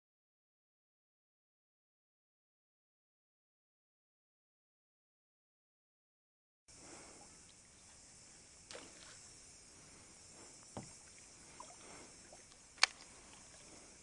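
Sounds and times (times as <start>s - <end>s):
low steady hush: 6.7s - 14.0s
sharp click: 12.8s - 13.1s.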